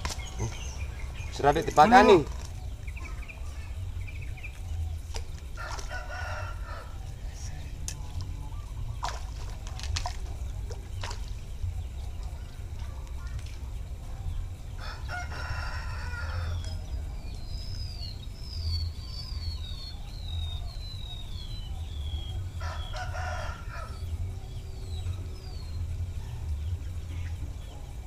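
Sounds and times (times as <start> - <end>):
small bird chirping: 0.0 - 14.9, 16.3 - 28.0
rooster crowing: 5.6 - 7.1, 14.8 - 16.8, 22.6 - 24.2.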